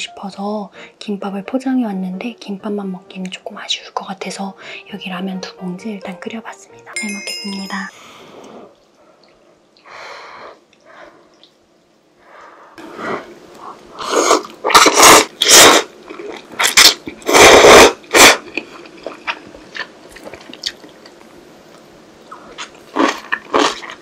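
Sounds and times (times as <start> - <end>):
blowing on hot noodles: 12.8 - 15.9, 17.2 - 18.4
loud noodle slurps: 14.0 - 15.9, 16.6 - 18.4
soft chewing: 18.4 - 24.0.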